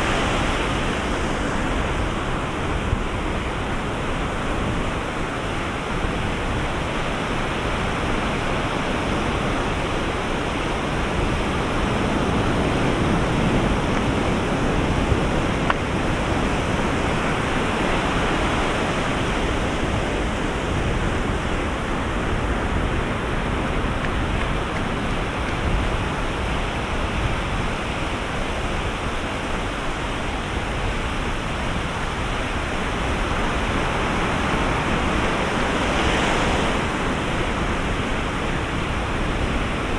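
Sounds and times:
waves breaking on beach: 0:00.0 - 0:39.9.

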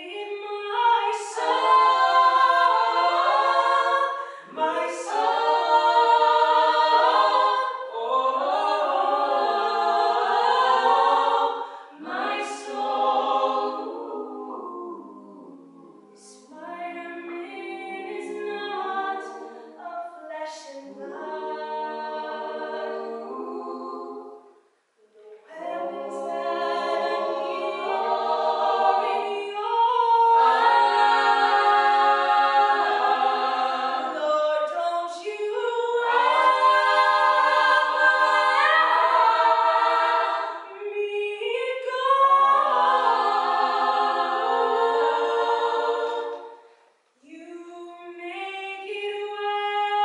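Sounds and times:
vocal trio singing a cappella: 0:00.0 - 0:50.0.

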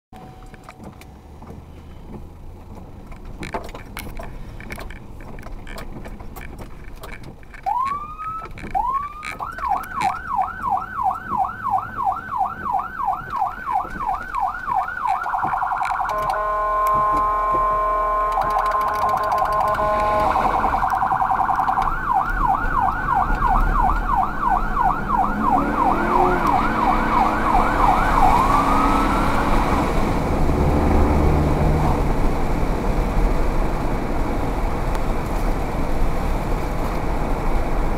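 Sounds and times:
low vehicle rumble: 0:00.2 - 0:37.9
emergency siren wailing and yelping: 0:07.6 - 0:30.0
blaring horn tone: 0:07.7 - 0:29.8.

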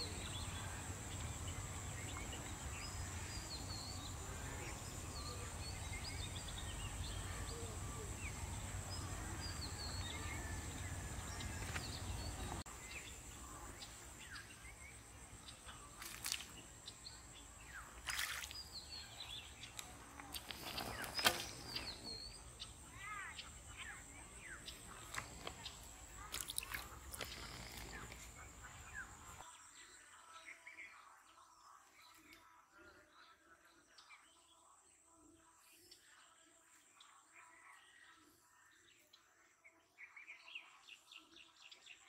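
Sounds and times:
small birds chirping: 0:00.0 - 0:42.0
fish splashing: 0:18.0 - 0:18.7.

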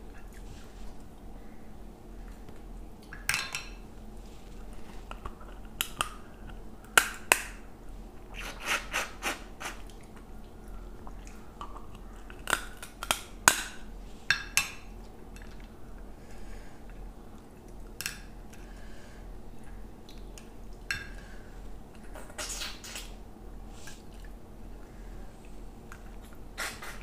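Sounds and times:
crab shell cracking and crunching: 0:11.6 - 0:13.8.

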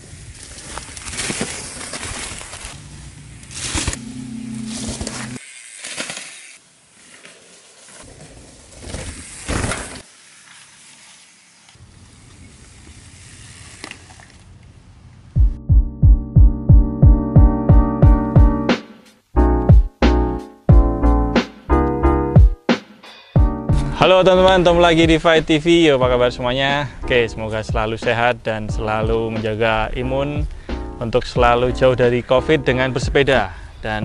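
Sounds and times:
bike tyres crunching on trail: 0:00.0 - 0:15.3
music with steady beat: 0:15.4 - 0:24.0.

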